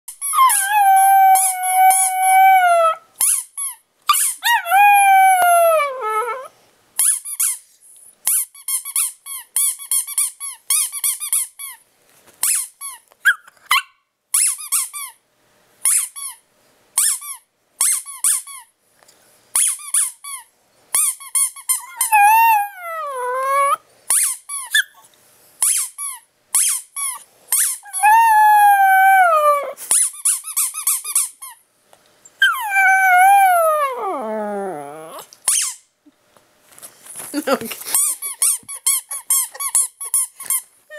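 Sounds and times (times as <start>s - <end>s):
squeaky toy squeaking: 0.1s - 6.4s, 7.0s - 7.6s, 8.2s - 11.8s, 12.4s - 15.2s, 15.8s - 16.4s, 17.0s - 18.7s, 19.6s - 31.6s, 35.5s - 35.9s, 38.0s - 40.7s
puppy howling: 0.3s - 3.1s, 4.3s - 6.5s, 21.8s - 23.8s, 27.8s - 29.8s, 32.4s - 35.3s.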